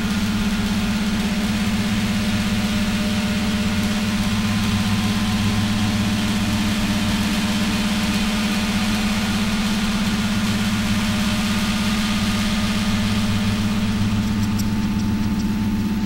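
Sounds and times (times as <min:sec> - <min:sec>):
low electronic drone with flutter: 0:00.0 - 0:16.0.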